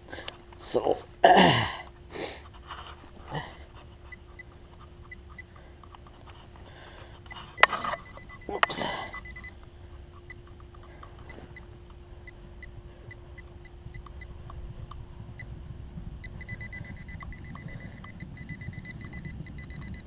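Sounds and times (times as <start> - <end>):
soil and stubble scraping: 1.7 - 12.0
metal detector pinpointer beeping: 3.2 - 15.6, 16.2 - 20.0.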